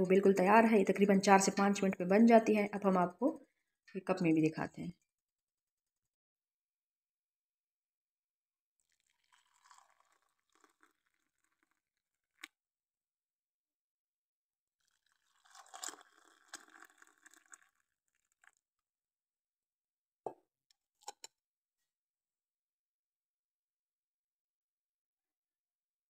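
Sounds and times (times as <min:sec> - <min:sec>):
tea pouring into a mug: 0:08.8 - 0:12.4, 0:14.8 - 0:18.6.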